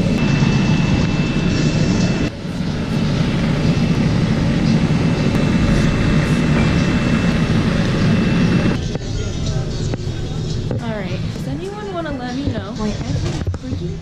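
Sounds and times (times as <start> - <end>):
electric blower rushing: 0.0 - 8.8.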